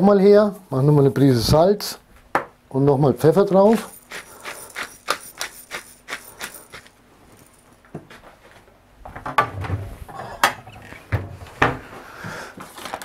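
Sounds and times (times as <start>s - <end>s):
pepper mill grinding: 3.6s - 7.6s
china plates clattering: 3.7s - 7.6s.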